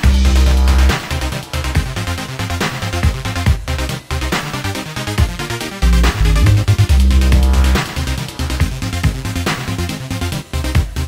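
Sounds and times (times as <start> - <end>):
electronic music with heavy bass: 0.0 - 1.2, 5.8 - 8.4
long low bass note: 0.1 - 1.0, 5.8 - 8.2.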